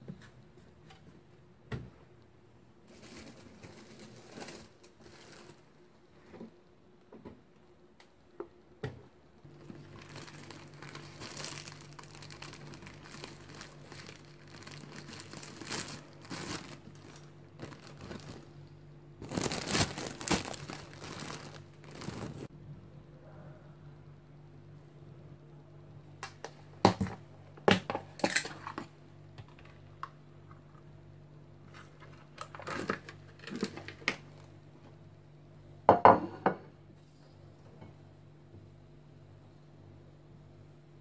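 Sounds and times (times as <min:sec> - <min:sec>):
plastic bag crinkling: 0:02.9 - 0:05.8, 0:09.5 - 0:22.5, 0:31.6 - 0:34.5.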